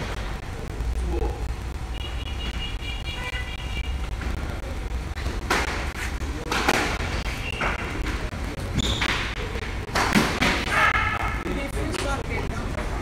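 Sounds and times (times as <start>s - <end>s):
steady low rumble: 0.0s - 9.9s
squash ball smacks: 5.4s - 8.0s, 8.8s - 11.4s.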